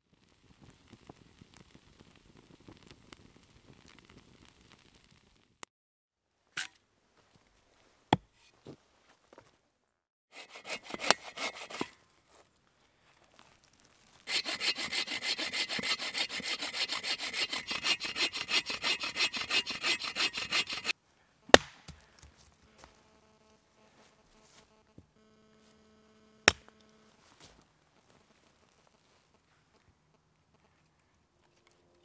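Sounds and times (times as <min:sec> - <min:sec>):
bow saw cutting a log: 0:10.3 - 0:12.0, 0:14.3 - 0:21.7
hatchet chopping wood: 0:10.4 - 0:11.9, 0:14.3 - 0:20.9, 0:21.5 - 0:22.3, 0:26.5 - 0:26.7.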